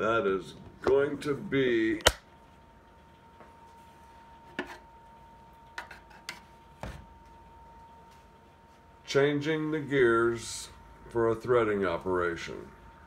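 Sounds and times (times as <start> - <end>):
faint high hum: 0.0 - 13.0.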